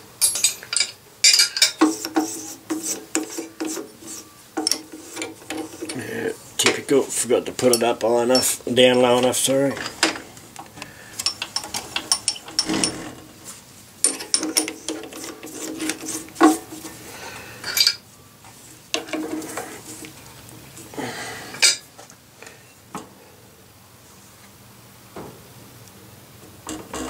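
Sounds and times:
steel parts clinking: 0.1 - 6.9, 7.5 - 10.3, 11.2 - 13.2, 14.0 - 17.0, 17.6 - 18.0, 21.6 - 21.8.

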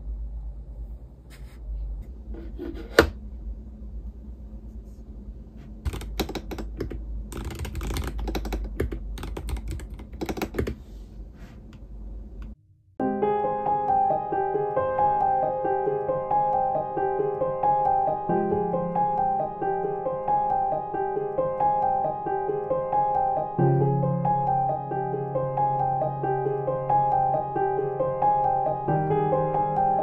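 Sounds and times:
low room rumble: 0.0 - 12.6
keyboard key clicks: 5.9 - 10.8
piano music: 13.0 - 30.0.

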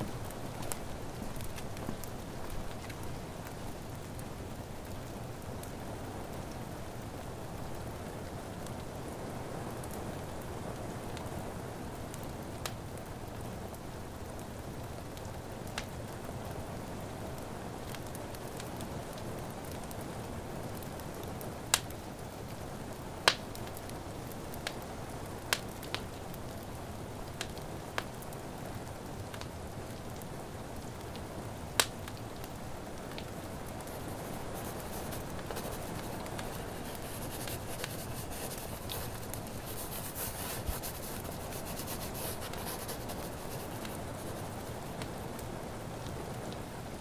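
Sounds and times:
burning wood popping: 0.0 - 5.0, 31.8 - 45.2
fireplace crackling: 0.0 - 9.1, 17.8 - 47.0
rain hissing: 0.0 - 11.8, 31.3 - 47.0
soft high scratching rustle: 33.8 - 44.8.

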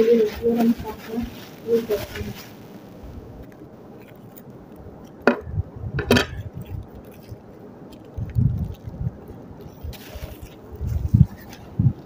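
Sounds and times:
dull low bumps: 4.8 - 7.0, 7.9 - 12.0.

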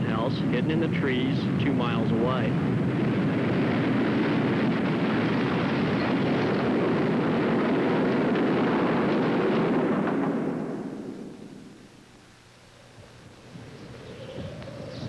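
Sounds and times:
loud rushing wind: 0.0 - 12.1.

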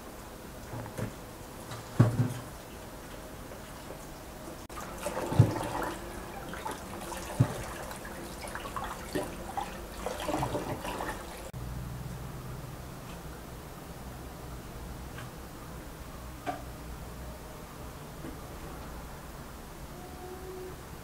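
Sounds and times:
tap water splashing in sink: 4.7 - 11.5.

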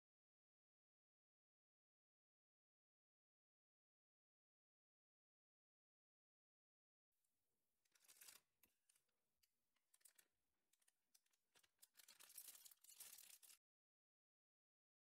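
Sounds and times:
plastic piping bag crinkling: 11.8 - 13.6.

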